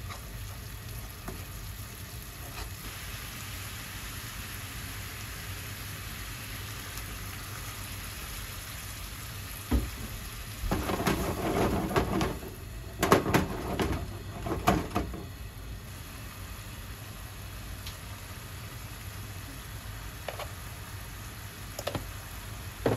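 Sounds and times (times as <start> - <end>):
sauce sizzling in a frying pan: 0.0 - 13.0, 15.3 - 22.9
pan knocking on stove grate: 10.7 - 15.3.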